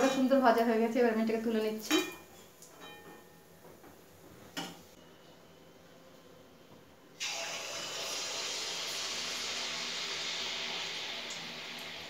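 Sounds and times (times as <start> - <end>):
batter sizzling in hot oil: 7.2 - 12.0.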